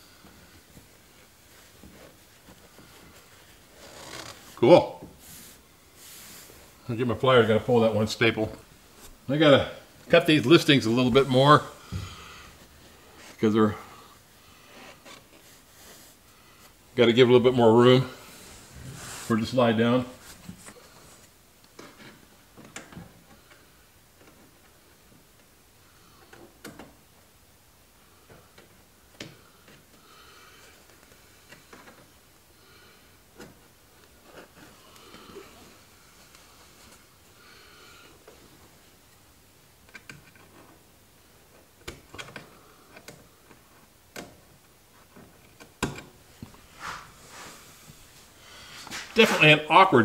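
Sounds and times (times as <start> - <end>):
cloth rustling: 0.1 - 13.8, 18.2 - 21.4, 46.2 - 49.6.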